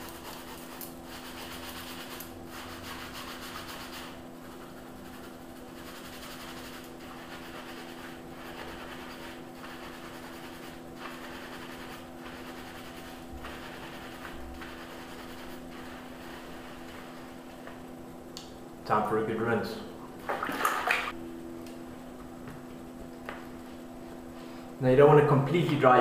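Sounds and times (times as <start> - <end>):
hands scrubbing wet beard: 0.0 - 17.4
low hum: 21.1 - 24.7.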